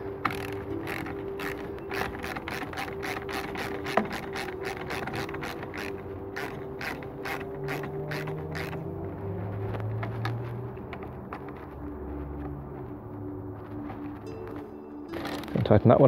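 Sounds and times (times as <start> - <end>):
hand ratchet clicking: 0.2 - 8.9.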